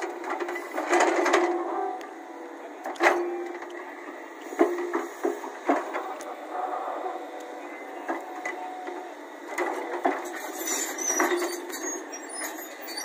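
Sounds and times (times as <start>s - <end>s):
excavator engine and hydraulics: 0.0s - 13.0s
thin high squeaks: 10.3s - 13.0s.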